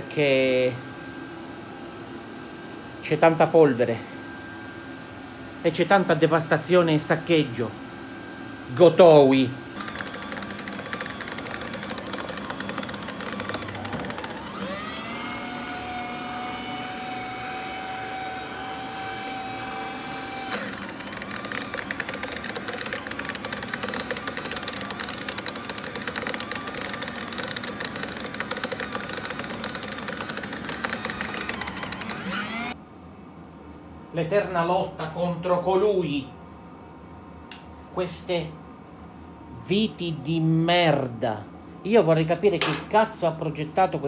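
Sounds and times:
paper shredder motor whine: 9.8s - 32.8s
shredder crunching cardboard: 9.8s - 32.8s.

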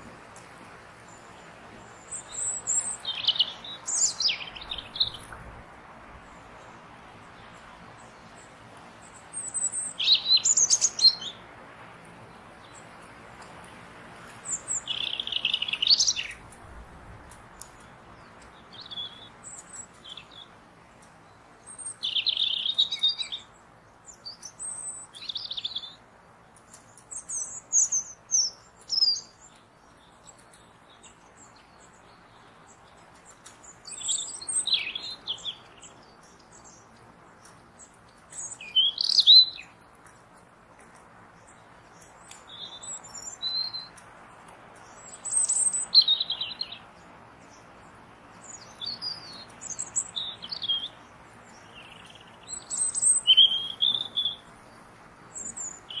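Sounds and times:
faint steady rushing noise: 0.0s - 56.0s
songbirds chirping: 0.0s - 56.0s.

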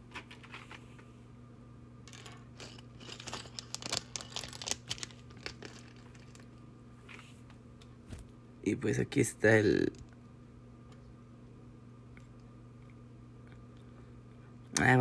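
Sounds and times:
steady low hum: 0.0s - 15.0s
plastic pieces crinkling and clicking: 2.1s - 6.6s.

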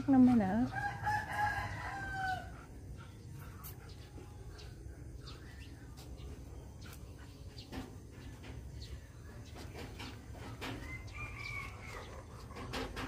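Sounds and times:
rooster crowing: 0.7s - 2.7s, 10.7s - 12.4s.

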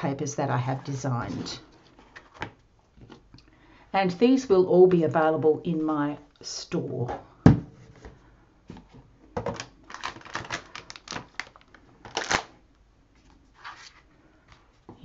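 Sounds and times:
paper rustling: 13.2s - 14.8s.

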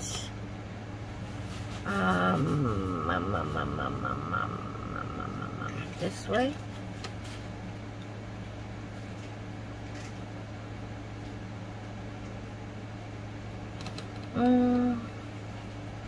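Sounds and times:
steady low hum: 0.0s - 16.0s
person humming: 1.7s - 6.2s, 14.3s - 15.2s.

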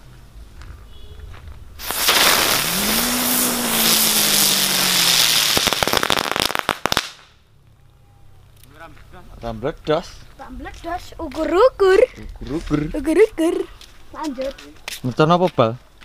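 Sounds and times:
sharp crackles: 1.2s - 7.9s
firecracker fizzing hiss: 1.8s - 7.3s.

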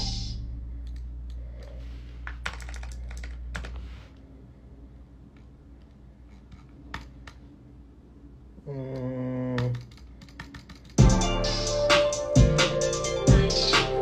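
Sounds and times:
low held bass tone: 0.0s - 1.3s, 11.0s - 14.0s
keyboard keys clicking: 2.3s - 3.8s, 9.6s - 11.0s.

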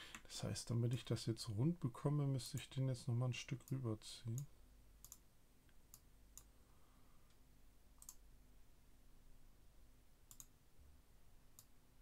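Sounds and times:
computer mouse clicks: 4.4s - 6.5s, 8.0s - 8.2s, 10.3s - 10.6s.

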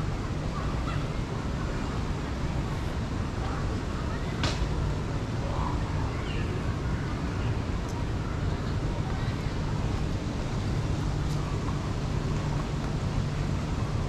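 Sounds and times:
faint distant voices: 0.0s - 14.0s.

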